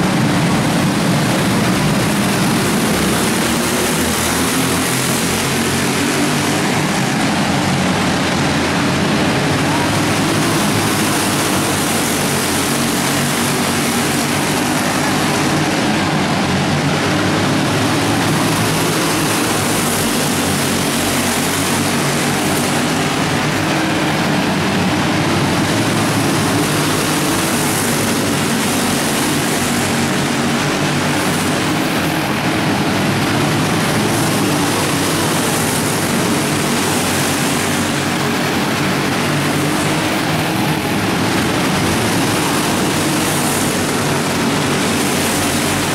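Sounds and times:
go-kart engines droning: 0.0s - 45.9s.

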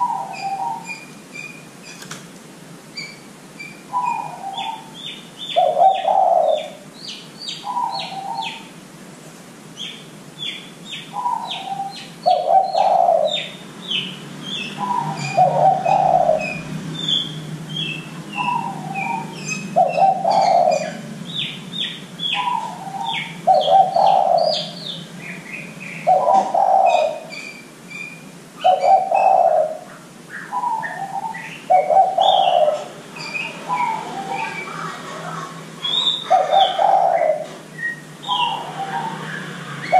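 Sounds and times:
small birds chirping: 0.0s - 2.1s, 2.8s - 8.8s, 9.7s - 39.9s
doves cooing: 3.9s - 6.8s, 11.2s - 13.5s, 14.6s - 21.6s, 22.2s - 27.4s, 28.6s - 39.9s.

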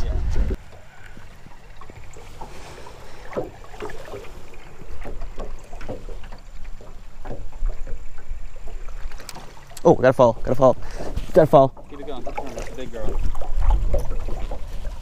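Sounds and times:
wind on microphone: 0.0s - 0.6s
waves lapping against boat hull: 0.0s - 15.0s.

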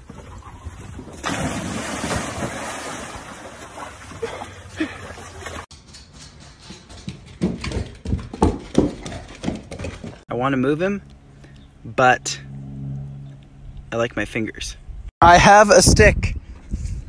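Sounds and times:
water churning and slapping: 0.0s - 5.7s
dogs splashing into pool: 0.9s - 5.7s.

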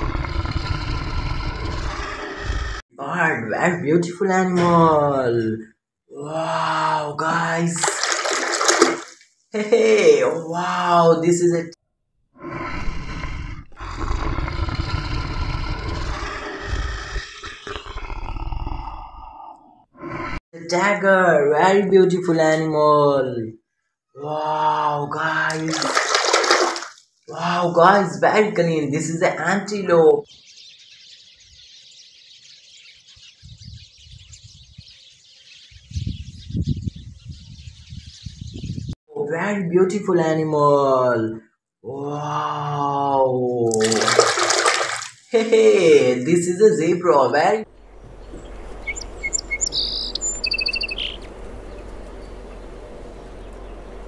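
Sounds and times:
low rumbling: 0.0s - 2.8s, 12.4s - 20.4s, 47.6s - 54.0s
tiger growling and roaring: 0.0s - 2.8s, 12.4s - 20.4s, 47.6s - 54.0s
birds chirping: 0.0s - 4.8s, 12.7s - 20.4s, 25.5s - 39.0s, 43.9s - 54.0s.

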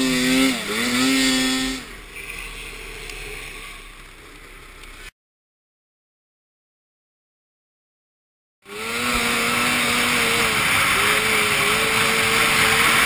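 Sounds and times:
snowmobile engine revving: 0.0s - 2.0s, 8.6s - 13.0s.

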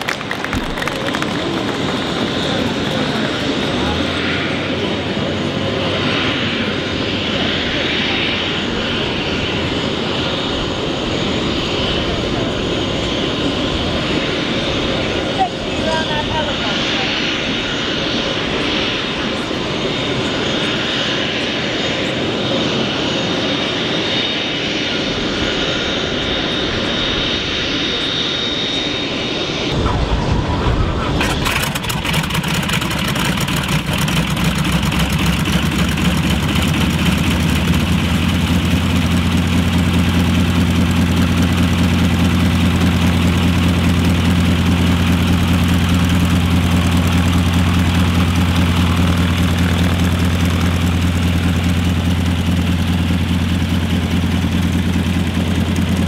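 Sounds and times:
high whine and rushing noise: 28.7s - 32.8s
radial engine starting and idling: 31.0s - 56.0s.

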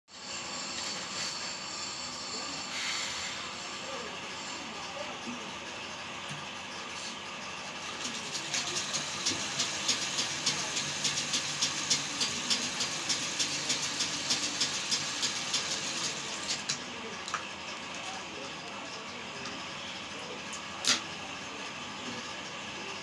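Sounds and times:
sewing machine whirring: 7.8s - 16.9s
sewing machine clicking: 8.0s - 16.8s.

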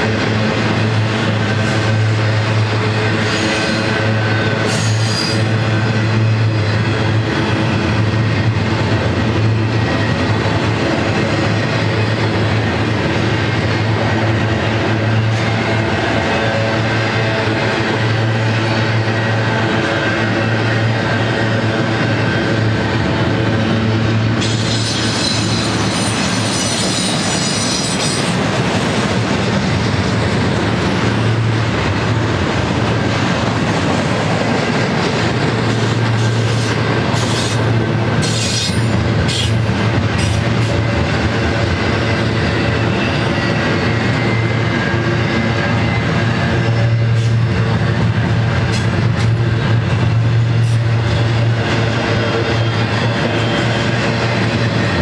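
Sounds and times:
train wheels rumbling on rails: 0.0s - 55.0s
high-pitched wheel squeal: 4.7s - 5.5s, 24.4s - 28.4s.

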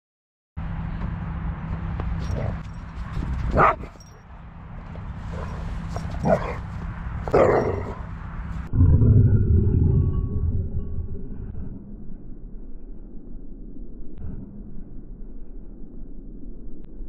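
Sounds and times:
steady low rumble: 0.6s - 17.0s
dog calling: 3.5s - 4.0s, 5.3s - 8.1s.

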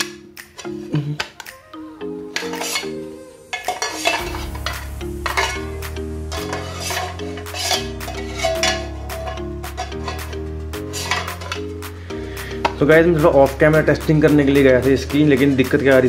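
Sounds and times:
background music with bass: 0.0s - 16.0s
metal clanking: 3.6s - 11.7s.

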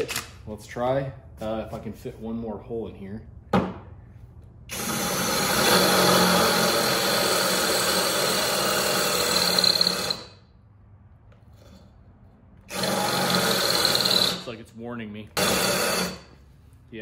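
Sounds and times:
cordless drill boring into brick: 4.7s - 10.4s, 12.7s - 14.5s, 15.4s - 16.3s.

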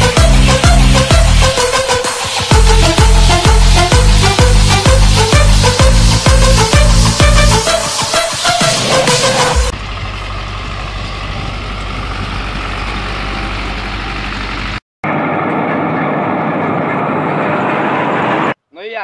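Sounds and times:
tractor diesel engines running: 8.7s - 18.5s
tractor engine running rough: 8.8s - 18.5s.

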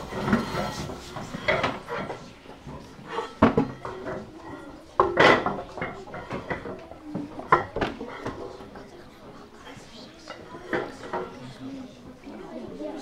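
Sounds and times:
chairs knocking and clattering: 0.0s - 8.8s.

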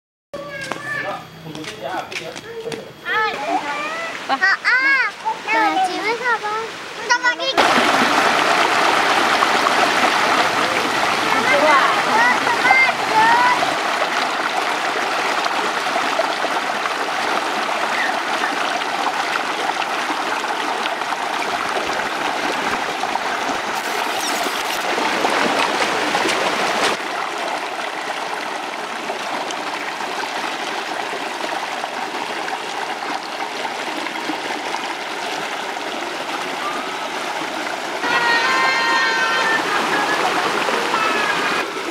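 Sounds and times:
stream running over stones: 1.5s - 41.9s.

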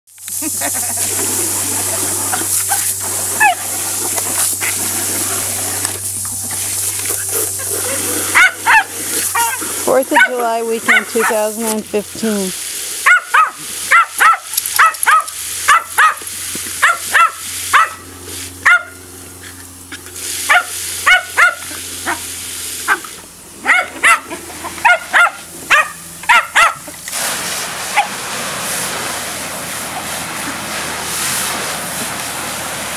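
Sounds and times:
garden hose water spraying: 0.1s - 32.9s
small dogs yapping: 2.3s - 3.8s, 7.1s - 11.3s, 13.0s - 18.0s, 18.6s - 19.0s, 19.9s - 26.9s.

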